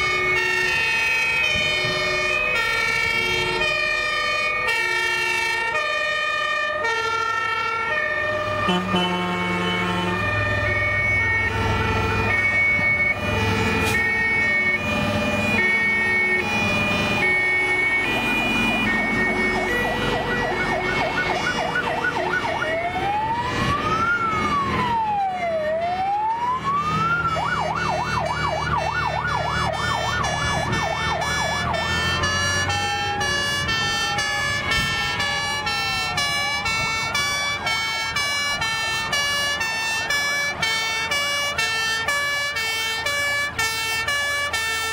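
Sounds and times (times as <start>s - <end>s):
electronic siren wailing: 0.0s - 44.9s
fire truck engines: 0.0s - 44.9s
two-tone siren horns: 0.0s - 44.9s.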